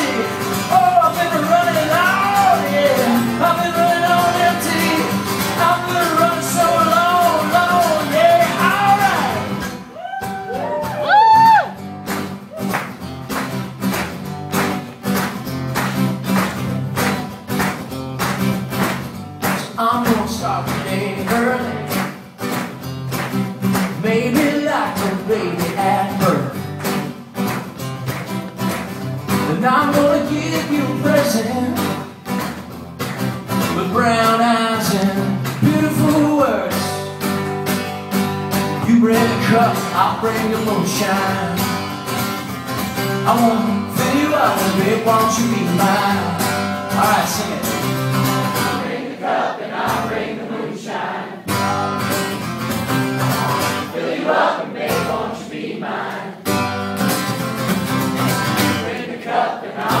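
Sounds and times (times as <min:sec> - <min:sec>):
person singing: 0:00.0 - 0:11.6, 0:51.5 - 0:52.4
acoustic guitar strumming: 0:00.0 - 1:00.0.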